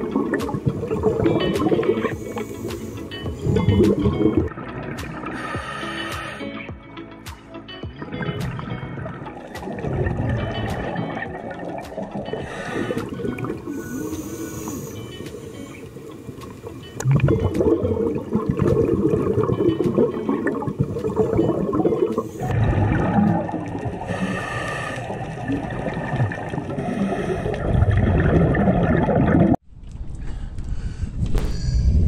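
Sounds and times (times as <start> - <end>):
underwater regulator bubbling: 0.0 - 6.4, 8.1 - 29.6
wind rumble: 29.6 - 32.0.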